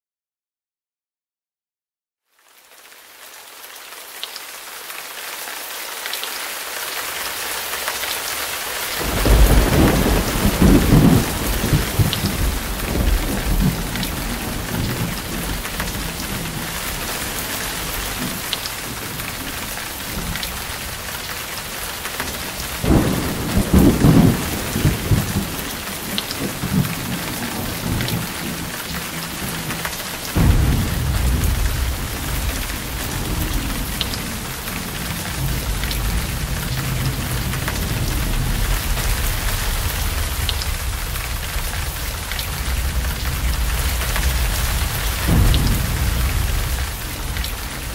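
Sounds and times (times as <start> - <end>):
heavy rain falling: 2.4 - 47.9
thunder rumbling: 9.0 - 47.9.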